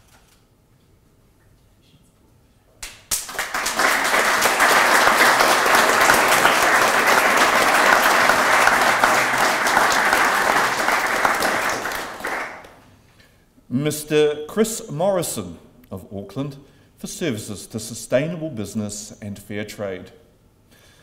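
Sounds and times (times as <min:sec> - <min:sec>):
audience applauding: 0:02.8 - 0:12.8.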